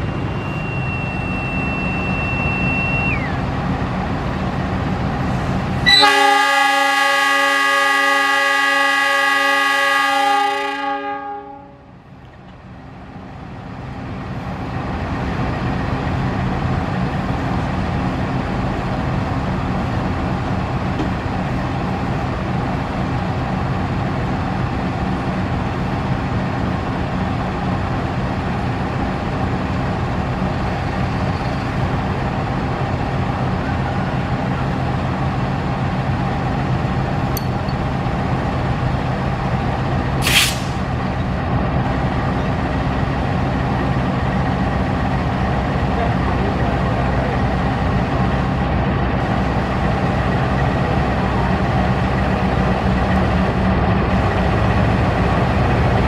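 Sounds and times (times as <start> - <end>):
locomotive engine drone: 0.0 - 56.0
train air horn chord: 5.8 - 11.9.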